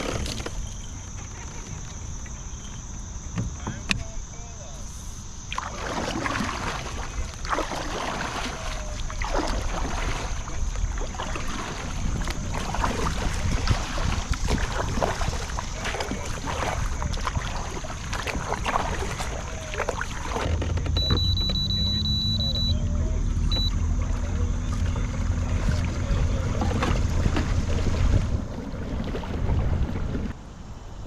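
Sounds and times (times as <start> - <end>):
water splashing around kayak: 0.0 - 30.6
wind rumble on microphone: 6.2 - 21.7, 22.7 - 31.0.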